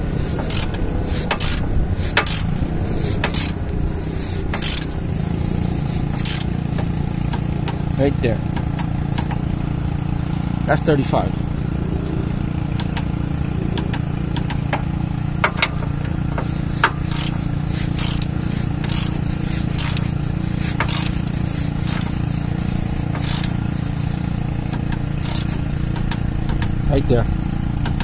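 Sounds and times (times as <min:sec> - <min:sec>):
low engine-like hum: 0:00.0 - 0:28.0
torque wrench clicking: 0:00.3 - 0:03.8, 0:04.5 - 0:05.4, 0:06.1 - 0:07.8, 0:12.8 - 0:26.8.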